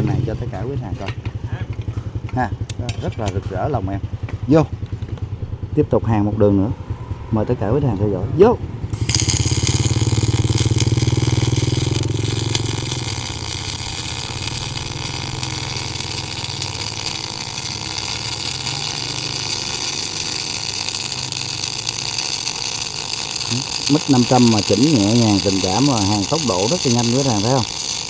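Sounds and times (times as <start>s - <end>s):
welding arc crackling buzz: 8.9s - 28.0s.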